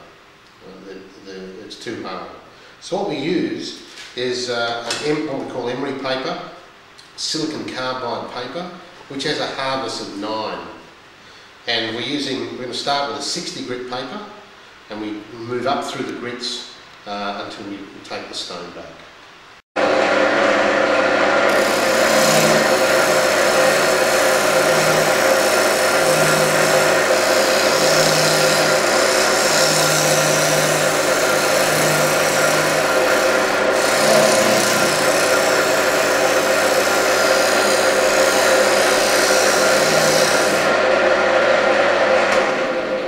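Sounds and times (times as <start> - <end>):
wood lathe motor hum: 19.9 - 43.0
turning tool scraping wood: 21.5 - 40.8.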